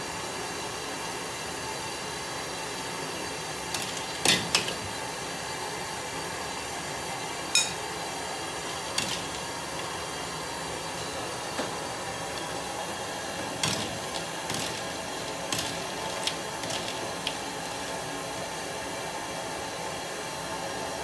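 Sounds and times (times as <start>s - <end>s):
steady hiss of steam and burners: 0.0s - 21.0s.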